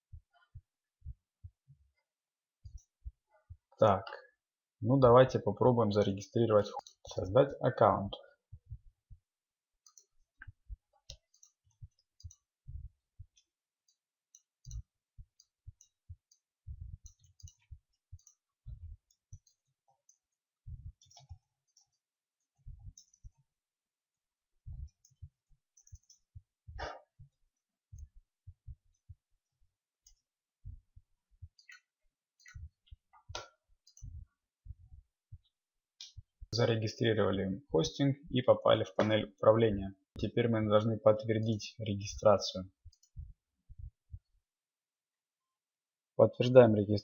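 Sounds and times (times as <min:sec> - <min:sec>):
computer keyboard typing: 0:17.0 - 0:18.4, 0:25.8 - 0:26.2.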